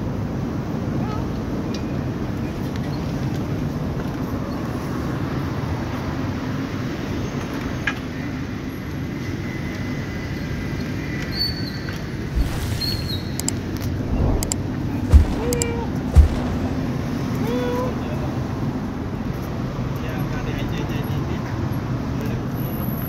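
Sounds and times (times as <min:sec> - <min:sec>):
street background rumble: 0:12.0 - 0:23.0.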